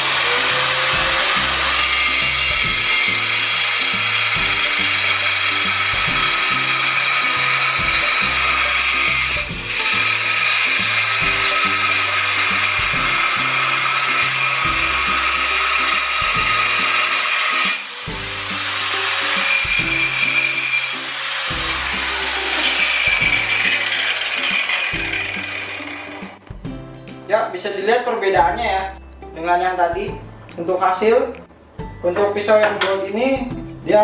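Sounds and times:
angle grinder cutting tile: 0.0 - 26.5.

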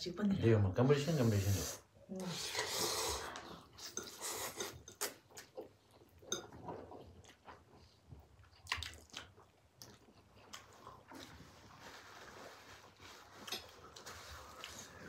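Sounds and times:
slurping noodles: 1.2 - 4.8.

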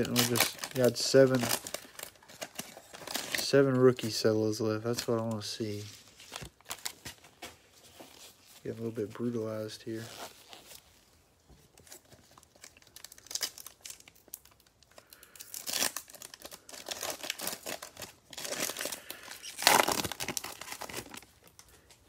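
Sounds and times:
foil wrapper crinkling and tearing: 0.0 - 4.0, 11.8 - 22.0.

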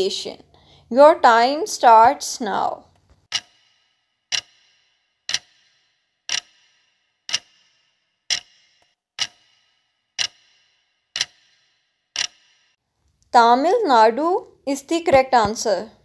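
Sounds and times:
clock ticking: 2.9 - 12.8.

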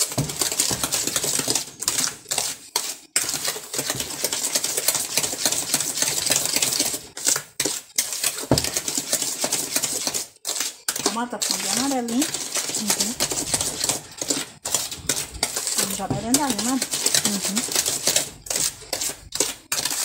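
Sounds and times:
spoon beating batter in bowl: 0.0 - 20.0.

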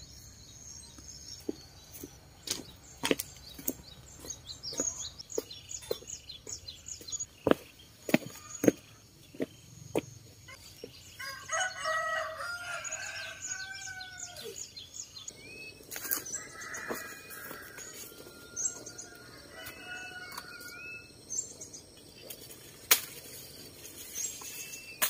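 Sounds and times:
small birds chirping: 0.0 - 25.0
rooster crowing: 11.2 - 14.6, 16.3 - 21.1.

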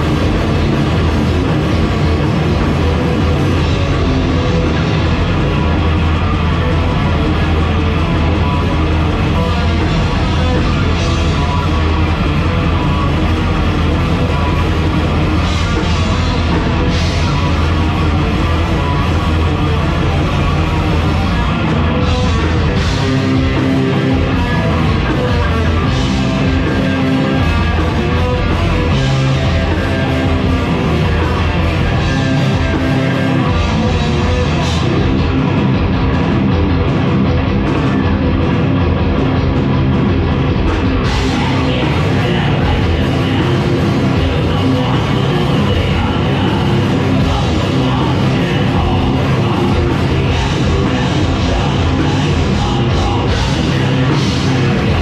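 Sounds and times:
heavy metal band playing live: 0.0 - 55.0.

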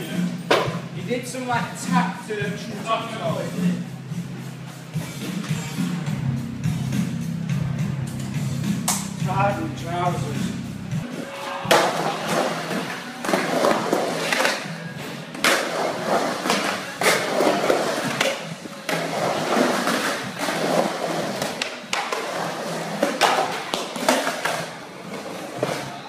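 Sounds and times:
skateboard wheels rolling on concrete: 11.1 - 26.0
skateboard clacks and knocks: 15.4 - 26.0.

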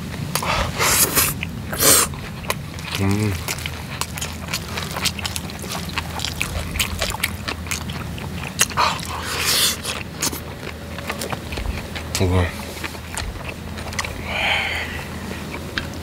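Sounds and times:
chewing with wet mouth clicks: 0.0 - 16.0
steady low hum: 0.0 - 16.0
breathy rush of noise: 14.2 - 15.6.

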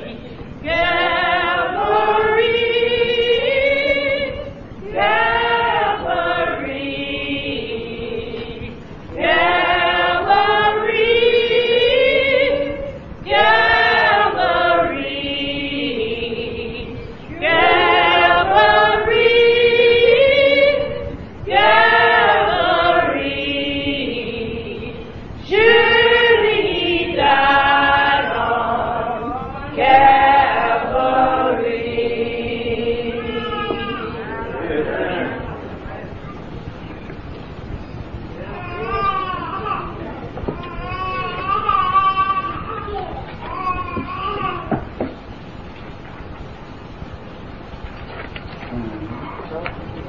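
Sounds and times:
choir singing gospel: 0.0 - 36.8.

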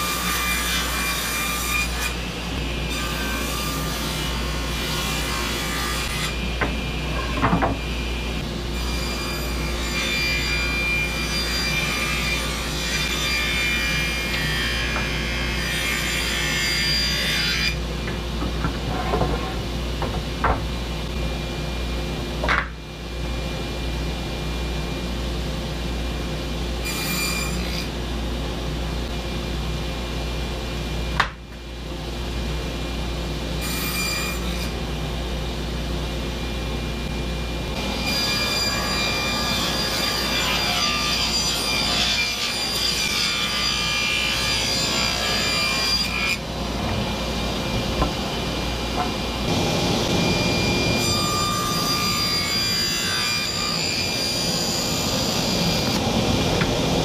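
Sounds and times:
saw cutting boards: 0.0 - 8.0, 8.8 - 17.8, 26.8 - 27.9, 33.6 - 34.8, 37.7 - 57.0
table saw running: 37.8 - 57.0.

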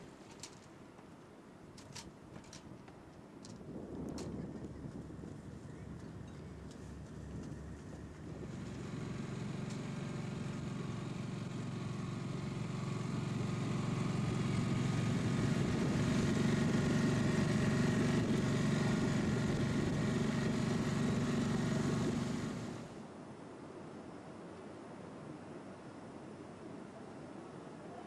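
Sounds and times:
outboard motor running: 4.8 - 23.0.

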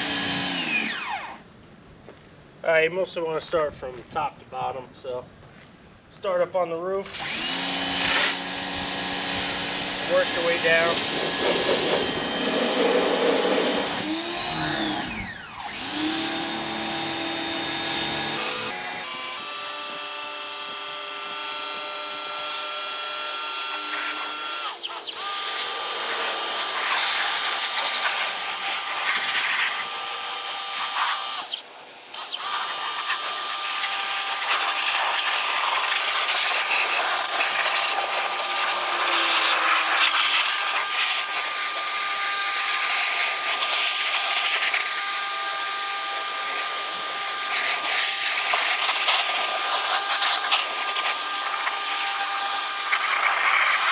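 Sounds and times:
pressure washer motor whine: 0.0 - 1.4, 7.1 - 19.7, 20.7 - 31.6, 32.2 - 53.9
water jet hissing: 32.1 - 41.8.

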